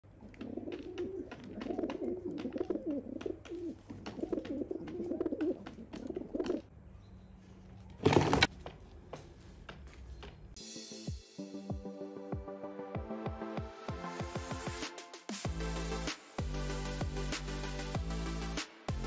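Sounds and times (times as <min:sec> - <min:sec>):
light pecking ticks: 0:00.1 - 0:06.7
pigeons cooing: 0:00.1 - 0:06.7.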